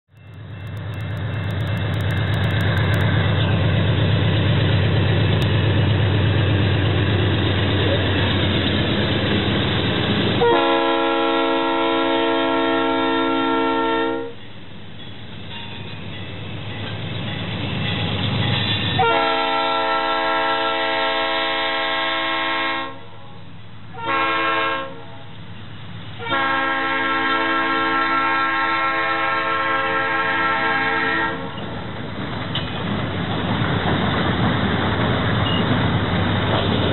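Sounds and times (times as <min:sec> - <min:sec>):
diesel locomotive engine rumble: 0:00.1 - 0:36.9
locomotive air horn blasts: 0:10.4 - 0:14.4, 0:19.0 - 0:25.3, 0:26.2 - 0:31.6.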